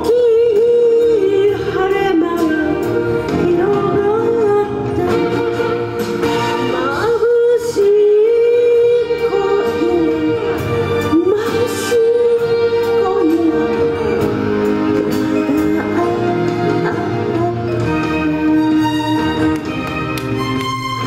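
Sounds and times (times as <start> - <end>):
instrumental accompaniment: 0.0 - 21.0
elderly woman singing: 15.5 - 18.8.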